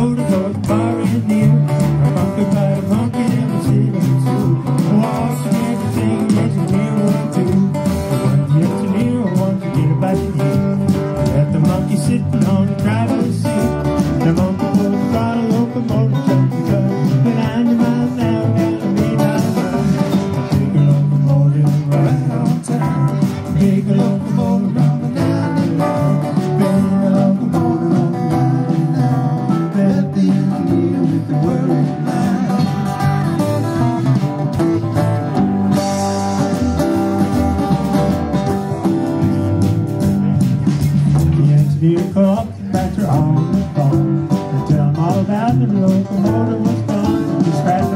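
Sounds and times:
drums: 0.0s - 47.9s
electric bass: 0.0s - 47.9s
keyboard: 0.0s - 47.9s
strummed acoustic guitar: 0.0s - 47.9s.

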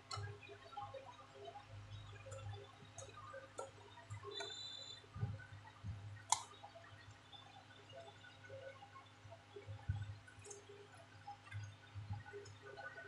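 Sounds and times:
brief high beep: 4.3s - 5.0s.

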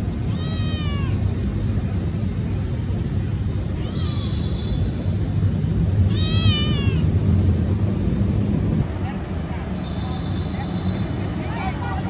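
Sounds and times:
steady low rumble: 0.0s - 12.0s
kitten meowing: 0.2s - 1.2s, 3.8s - 4.5s, 6.1s - 7.1s.

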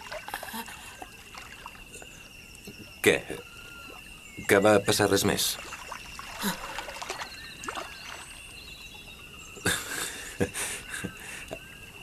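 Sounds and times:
water splashing: 0.0s - 2.0s, 5.4s - 8.6s
bird chirps: 0.0s - 12.0s.

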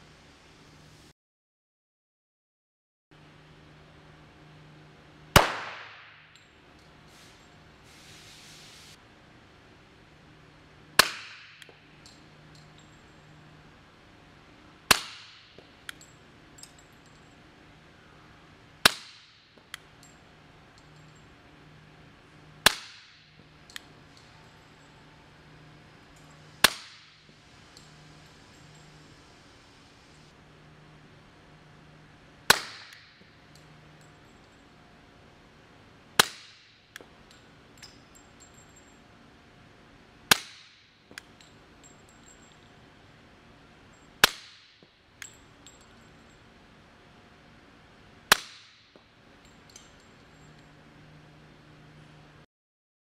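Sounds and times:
suppressed pistol shots: 5.4s - 6.2s
faint clink: 11.6s - 13.5s, 15.6s - 17.5s, 19.6s - 21.4s, 23.3s - 25.3s, 26.0s - 26.6s, 27.6s - 29.2s, 33.4s - 34.8s, 37.0s - 39.1s, 41.1s - 42.8s, 45.2s - 46.5s, 49.4s - 50.9s.

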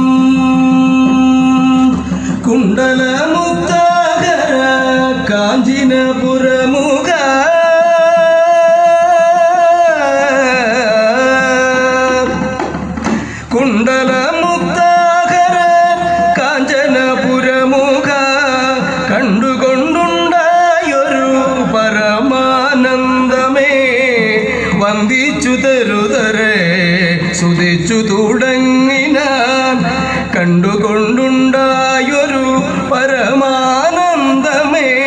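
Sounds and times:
person singing slow melody: 0.0s - 12.6s.

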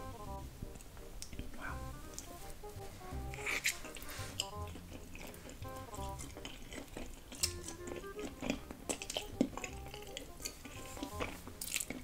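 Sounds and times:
light background music: 0.0s - 12.0s
chopsticks clicking against dish: 3.4s - 12.0s
noodles being slurped and chewed: 3.4s - 12.0s.

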